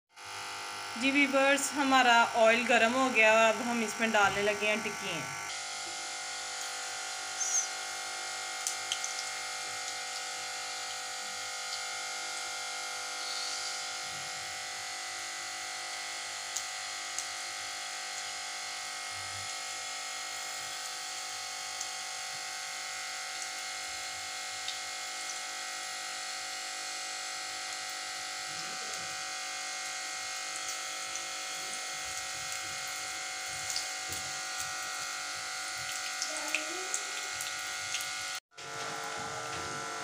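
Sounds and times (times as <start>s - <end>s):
patties sizzling in hot oil: 0.2s - 40.0s
steady buzzing hum: 0.2s - 40.0s.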